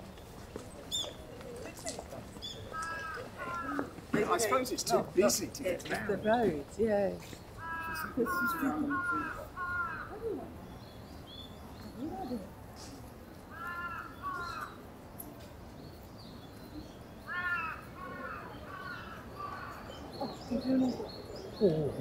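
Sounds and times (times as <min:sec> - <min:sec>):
crow cawing: 0:02.7 - 0:04.0, 0:07.6 - 0:10.2, 0:13.5 - 0:14.8, 0:17.3 - 0:20.0.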